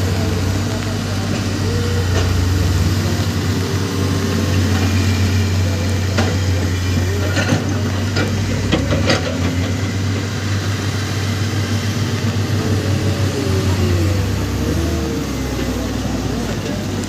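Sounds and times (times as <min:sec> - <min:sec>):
heavy diesel engines running: 0:00.0 - 0:17.0.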